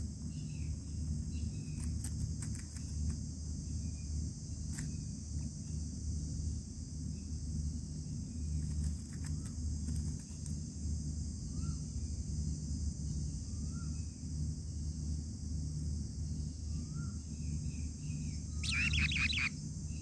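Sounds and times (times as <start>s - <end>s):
insect chorus drone: 0.0s - 20.0s
faint short chirps: 18.6s - 19.5s.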